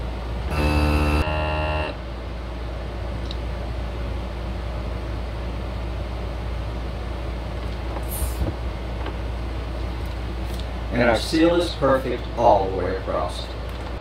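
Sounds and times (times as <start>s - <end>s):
vacuum sealer humming: 0.0s - 2.0s
short hiss of air: 8.0s - 8.6s.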